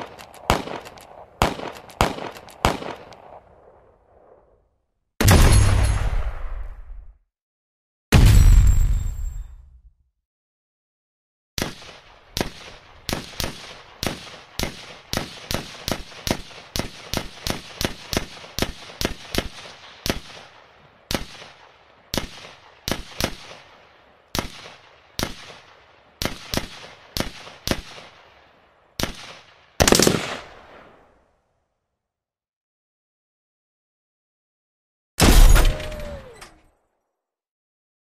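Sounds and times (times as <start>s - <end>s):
pistol gunshots: 0.0s - 3.4s, 11.6s - 23.8s, 29.0s - 30.8s.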